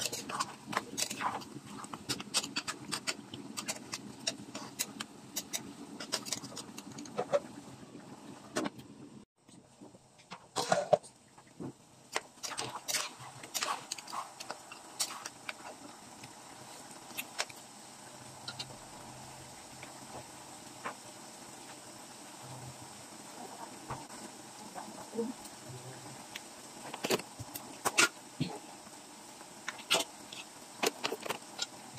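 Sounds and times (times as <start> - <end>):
metal spoon stirring: 0.0 - 7.2, 12.4 - 15.9.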